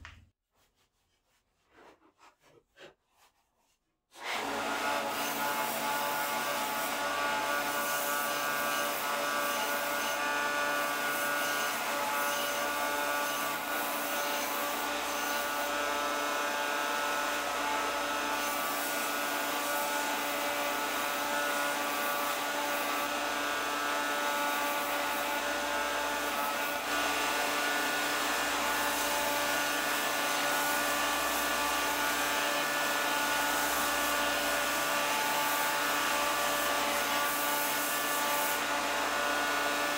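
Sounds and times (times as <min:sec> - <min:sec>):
wood rubbing on sanding belt: 0:24.1 - 0:39.9.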